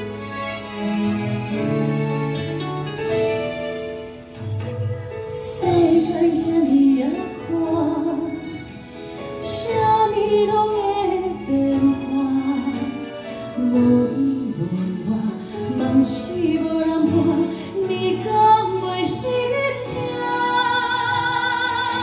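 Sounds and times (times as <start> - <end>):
instrumental accompaniment: 0.0 - 22.0
woman singing into microphone: 5.3 - 22.0.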